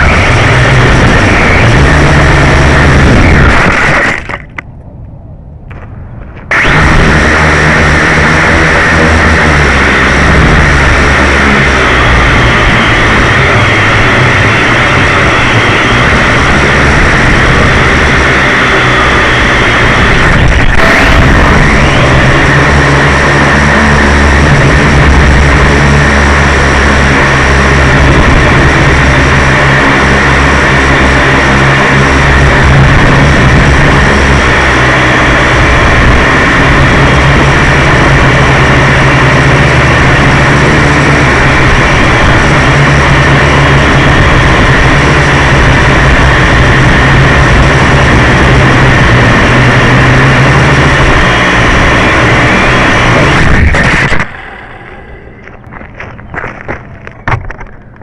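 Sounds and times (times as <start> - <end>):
wind rushing over microphone: 0.0 - 58.0.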